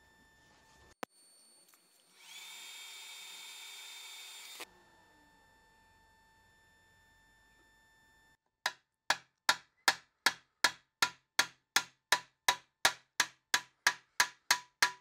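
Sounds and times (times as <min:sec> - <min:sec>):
hammer striking metal: 0:08.7 - 0:15.0.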